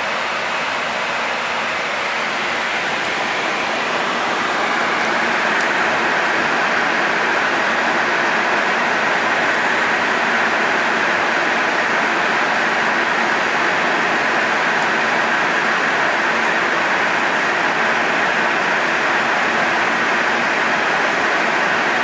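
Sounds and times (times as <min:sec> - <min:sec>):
air rushing past cockpit: 0:00.2 - 0:10.9.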